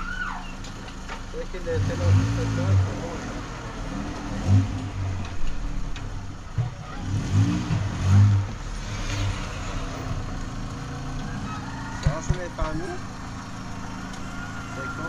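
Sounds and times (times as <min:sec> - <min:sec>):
engine revving: 0:01.4 - 0:15.0
pickup truck engine running: 0:09.4 - 0:15.0.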